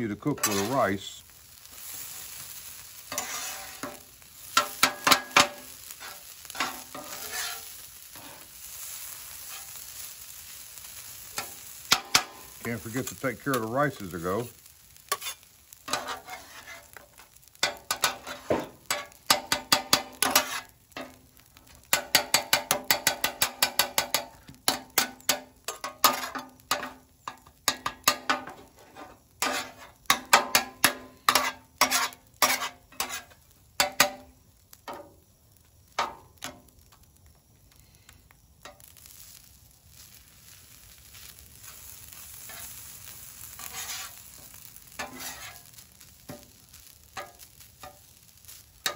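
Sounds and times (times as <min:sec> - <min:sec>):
soft frying sizzle: 0:00.0 - 0:48.9
metal spatulas clacking on griddle: 0:04.6 - 0:07.7, 0:11.4 - 0:12.4, 0:15.1 - 0:16.6, 0:17.6 - 0:21.2, 0:21.9 - 0:34.2, 0:45.0 - 0:45.6, 0:47.2 - 0:48.0.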